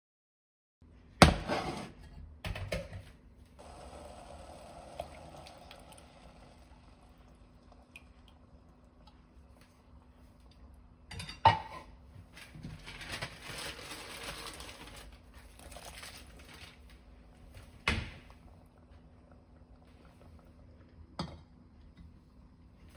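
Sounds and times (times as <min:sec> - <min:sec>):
soft patter and rustle: 0:12.2 - 0:17.8.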